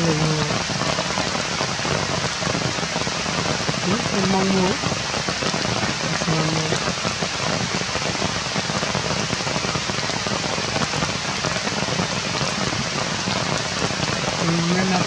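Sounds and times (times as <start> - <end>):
low voice: 0.0 - 0.6, 3.9 - 4.8, 6.2 - 6.8, 14.4 - 15.0
rain falling on leaves: 0.0 - 15.0.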